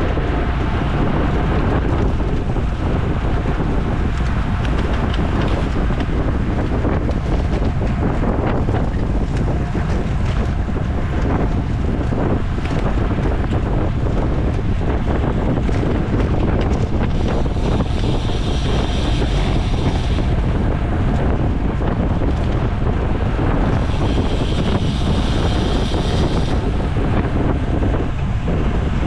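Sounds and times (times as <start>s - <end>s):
wind rumble on microphone: 0.0s - 29.0s
high whirring: 14.4s - 29.0s.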